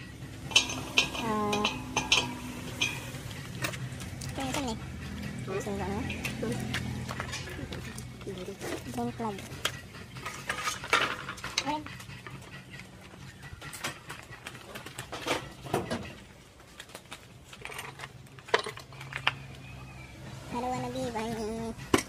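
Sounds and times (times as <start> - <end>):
steady low hum: 0.0 - 16.6
metal hand tools clinking: 0.4 - 12.6.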